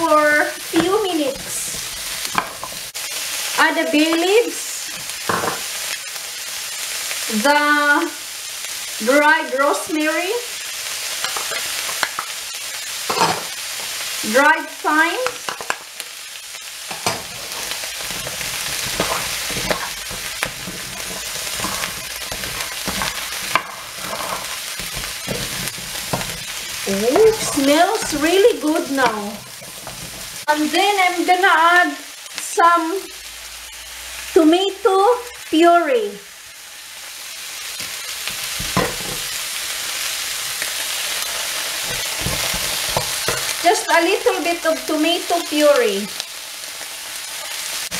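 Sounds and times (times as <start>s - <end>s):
vegetables sizzling in oil: 0.0s - 47.9s
spatula scraping a pan: 16.9s - 30.5s, 41.3s - 43.6s.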